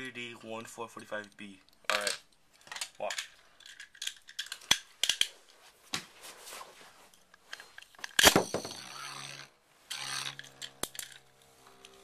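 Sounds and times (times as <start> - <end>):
spinning top humming: 8.4 - 12.0.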